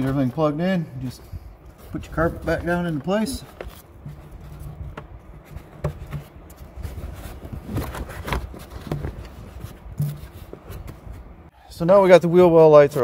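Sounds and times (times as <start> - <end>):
carpet rustling and scraping: 0.0 - 11.5
handling knocks and clicks: 1.6 - 11.3.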